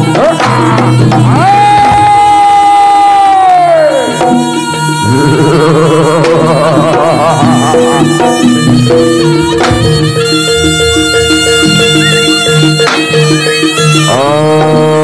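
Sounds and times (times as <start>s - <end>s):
drums keeping a beat: 0.0s - 15.0s
gamelan ensemble music: 0.0s - 15.0s
held melody notes: 0.0s - 15.0s.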